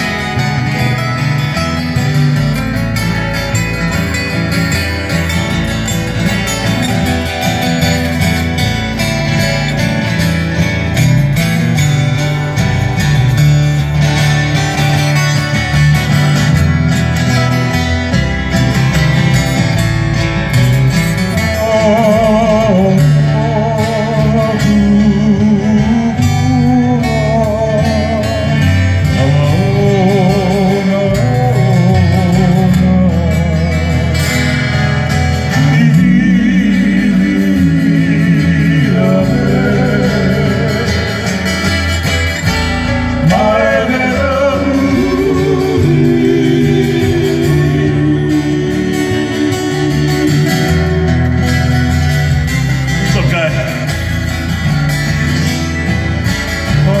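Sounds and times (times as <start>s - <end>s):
bass guitar: 0.0s - 57.0s
strummed acoustic guitar: 0.0s - 57.0s
twelve-string guitar: 0.0s - 57.0s
men singing with vibrato: 21.2s - 54.3s.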